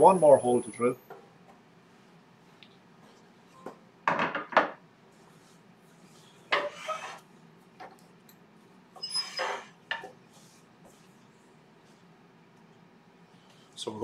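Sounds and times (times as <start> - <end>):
metal clunks and scrapes: 6.5 - 7.2.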